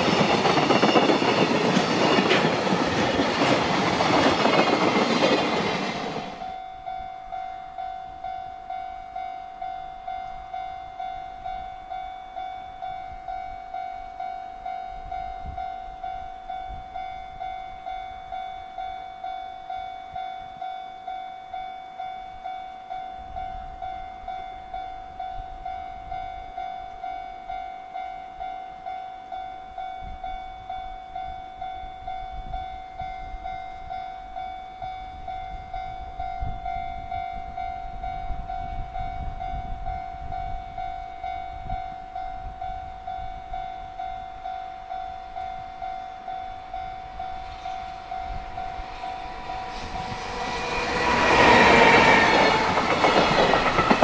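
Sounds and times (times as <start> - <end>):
locomotive rumble: 46.9 - 54.0.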